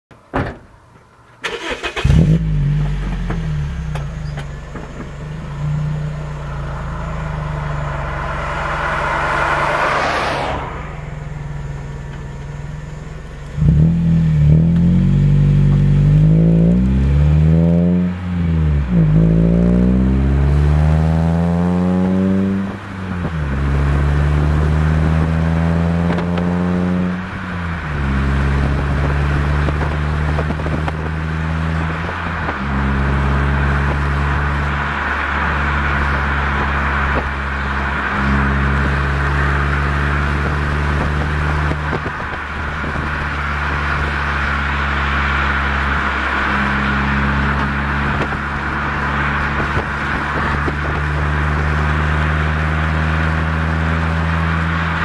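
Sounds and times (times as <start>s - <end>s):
car engine idling and revving: 0.7s - 55.0s.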